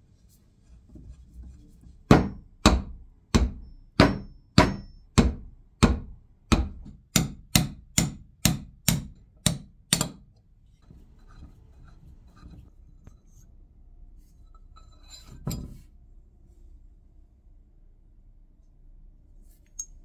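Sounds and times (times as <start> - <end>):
hammer striking metal: 2.1 - 10.3.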